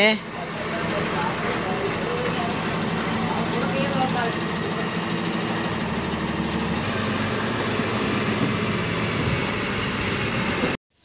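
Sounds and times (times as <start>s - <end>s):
truck diesel engine idling: 0.0s - 10.8s.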